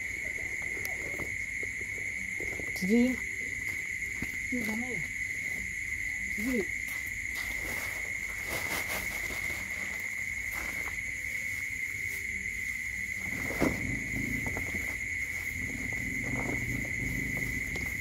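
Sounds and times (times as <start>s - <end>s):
animal cry: 13.6s - 18.0s.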